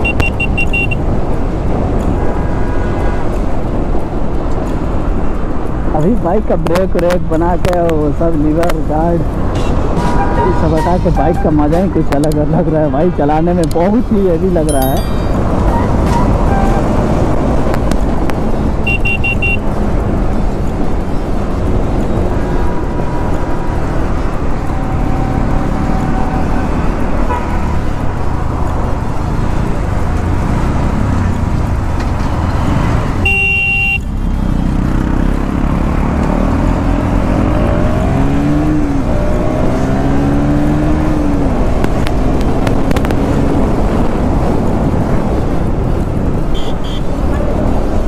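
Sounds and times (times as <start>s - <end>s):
vehicle horn toot: 0.0s - 1.0s, 15.7s - 16.9s, 18.8s - 19.6s, 33.2s - 34.1s, 46.5s - 47.1s
wind rush on microphone: 0.0s - 14.6s, 15.3s - 18.9s, 19.6s - 33.3s, 34.7s - 48.0s
motorcycle engine revving: 22.1s - 44.4s.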